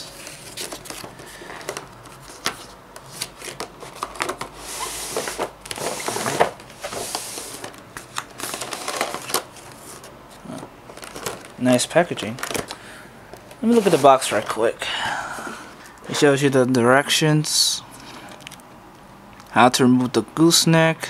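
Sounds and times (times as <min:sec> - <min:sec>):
cardboard and plastic rustling: 0:00.0 - 0:14.7.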